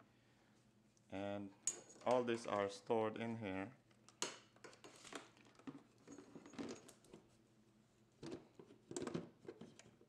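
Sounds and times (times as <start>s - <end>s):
knocks and rustles of handling: 1.7s - 2.9s, 3.9s - 7.4s, 8.0s - 10.0s.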